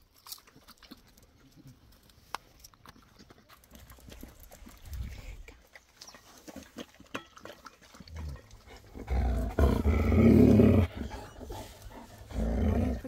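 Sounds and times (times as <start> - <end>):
dog growling grumble: 8.2 - 13.0.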